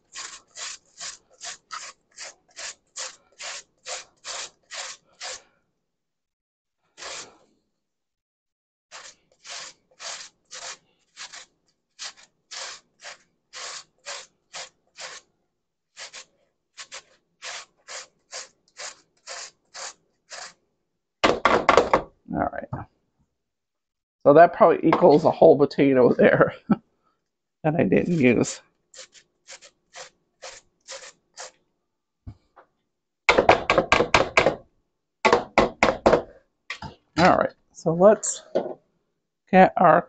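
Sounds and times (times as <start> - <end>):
potato grating strokes: 0.0 - 5.5, 7.0 - 7.4, 8.9 - 15.3, 15.9 - 20.6, 28.1 - 31.6.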